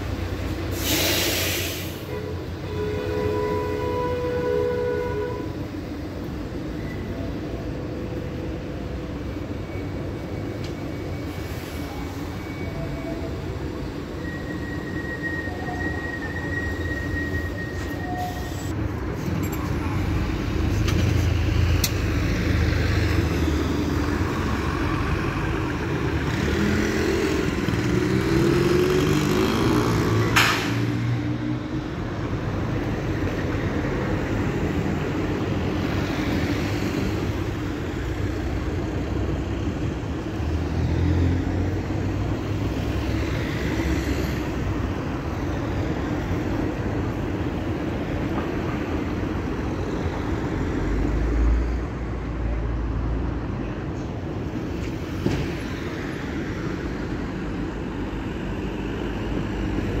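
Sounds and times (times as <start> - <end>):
cars driving past: 18.7 - 60.0.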